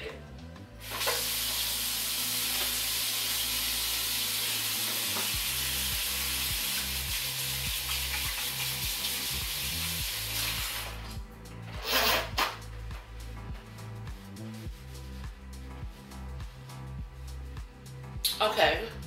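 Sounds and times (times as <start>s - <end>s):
water running from faucet: 0.8s - 11.1s
hands washing under water: 4.4s - 11.0s.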